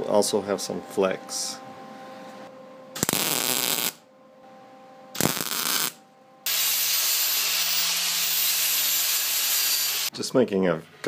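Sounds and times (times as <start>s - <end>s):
welding crackle: 3.0s - 4.0s, 5.2s - 10.1s
angle grinder grinding steel: 6.5s - 10.1s.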